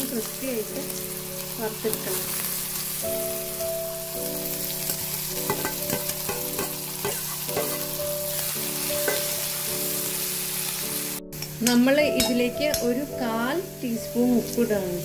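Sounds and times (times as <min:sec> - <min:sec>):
onion sizzling in oil: 0:00.0 - 0:15.0
spatula clinking and scraping pan: 0:04.9 - 0:09.7, 0:11.4 - 0:13.0.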